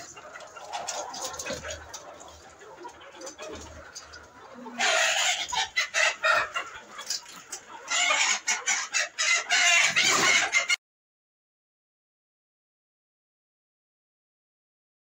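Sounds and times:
chickens clucking and squawking: 0.0s - 10.8s.

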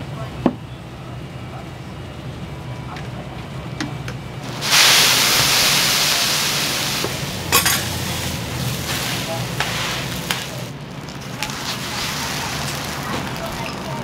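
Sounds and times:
food sizzling on griddle: 4.4s - 14.0s.

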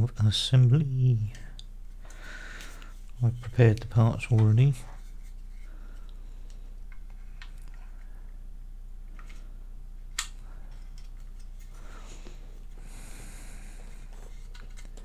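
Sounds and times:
low electrical hum: 0.0s - 15.0s
plastic parts clicking together: 10.1s - 11.7s, 14.1s - 15.0s.

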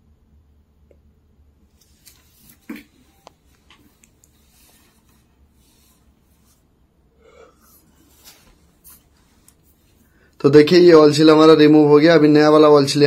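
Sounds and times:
cloth rustling: 1.6s - 10.3s.

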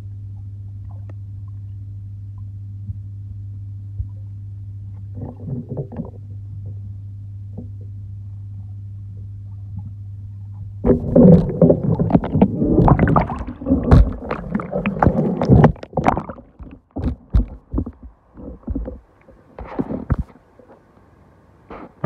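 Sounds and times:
pool pump humming underwater: 0.0s - 22.0s
water churning and bubbling: 5.0s - 6.8s, 8.7s - 20.3s
knocks and splashes: 10.9s - 20.3s.

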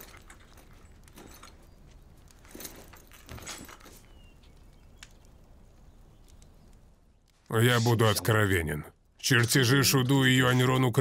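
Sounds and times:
faint rustles and soft knocks: 0.0s - 7.5s.

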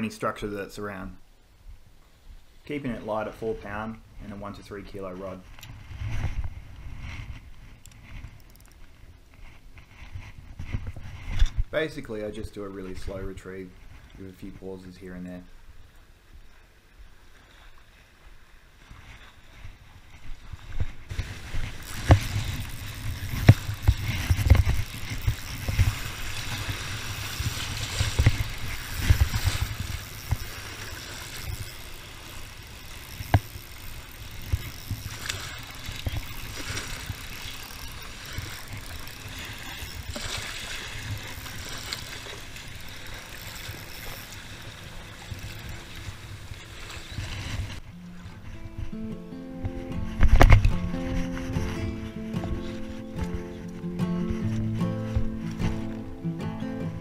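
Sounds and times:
waves lapping against rocks: 2.2s - 49.0s
wind buffeting microphone: 18.9s - 53.5s.

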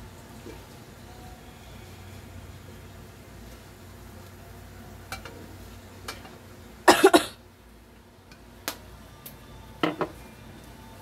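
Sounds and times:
person coughing: 6.9s - 7.4s.

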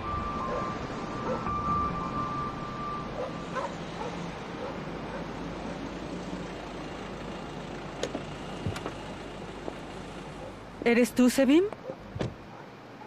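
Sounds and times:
car engine running: 0.0s - 11.0s
distant dog barking: 0.4s - 1.6s, 3.0s - 5.4s, 10.4s - 10.6s, 11.8s - 13.0s.

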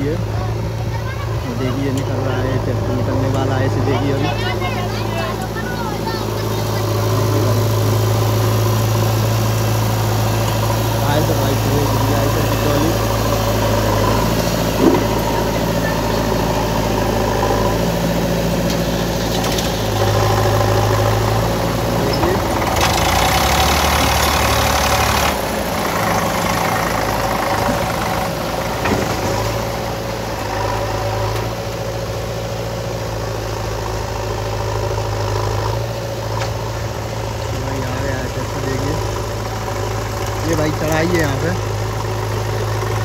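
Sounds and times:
backhoe loader diesel engine: 0.0s - 43.0s
tractor diesel engine: 0.0s - 43.0s.

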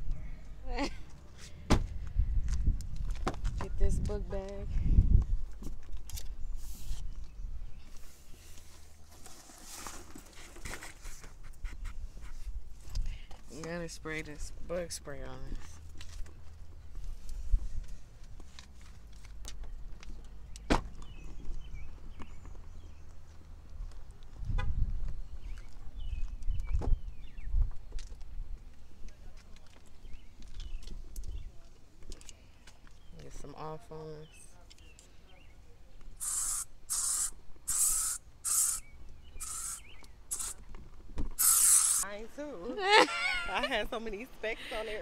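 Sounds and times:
aerosol can spraying: 36.2s - 40.6s, 41.4s - 42.0s.

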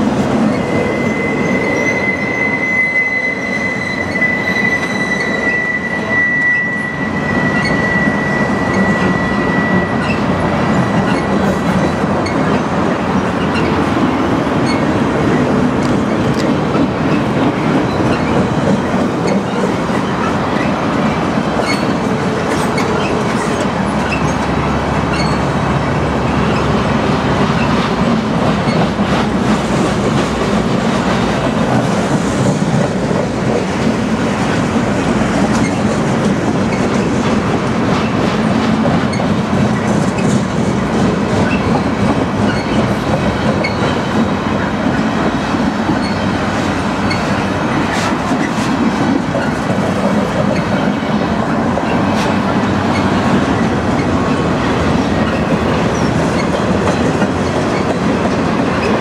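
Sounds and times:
train wheels rumbling on rail: 0.0s - 59.0s
wheels clicking over rail joints: 35.4s - 59.0s.

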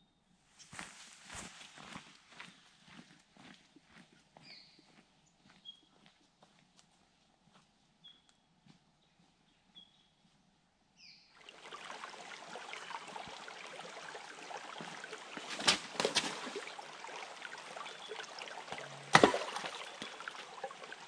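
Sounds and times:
creek trickling over rocks: 11.4s - 21.0s.

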